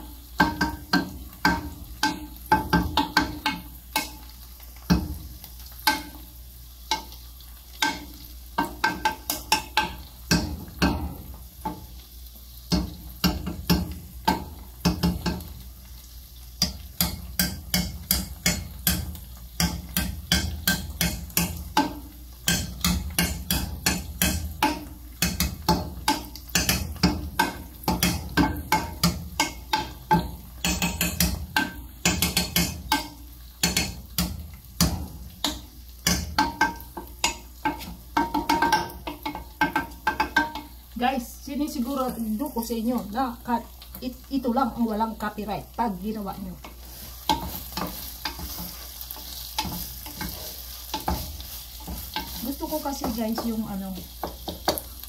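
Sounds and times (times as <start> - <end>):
low frying sizzle: 0.0 - 55.0
wooden spoon scraping metal pot: 46.6 - 54.6.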